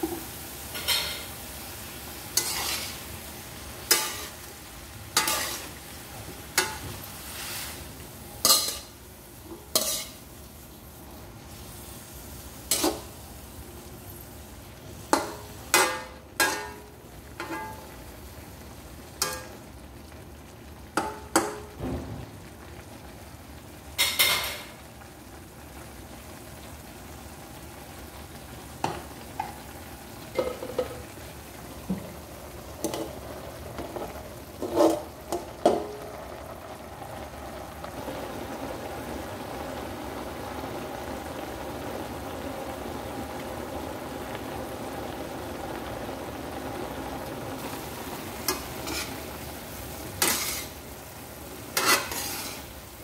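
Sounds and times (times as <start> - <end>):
spatula scraping and knocking wok: 0.0 - 1.4, 2.3 - 3.1, 3.8 - 4.5, 5.1 - 10.3, 12.7 - 13.2, 15.1 - 17.8, 33.8 - 36.0, 48.4 - 49.4, 50.0 - 50.8, 51.7 - 52.8
food sizzling in a wok: 0.0 - 53.0.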